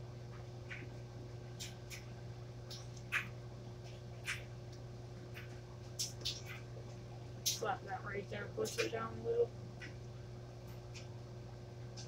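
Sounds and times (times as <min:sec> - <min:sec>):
steady low hum: 0:00.0 - 0:12.0
person chewing bread: 0:00.3 - 0:07.6.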